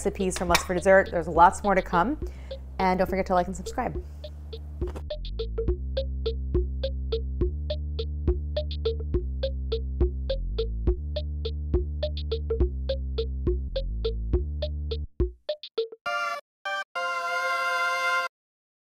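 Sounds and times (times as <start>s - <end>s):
plucked synthesizer notes: 0.0s - 15.0s
electronic bass line: 0.8s - 15.2s.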